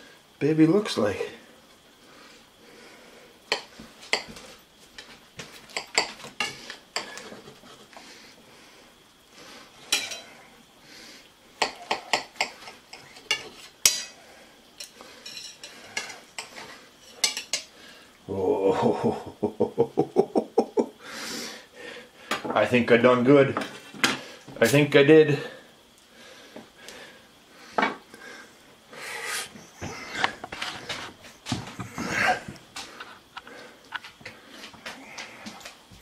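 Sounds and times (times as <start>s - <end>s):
cutlery scraping a ceramic plate: 9.9s - 10.3s, 11.7s - 14.2s, 14.8s - 17.7s.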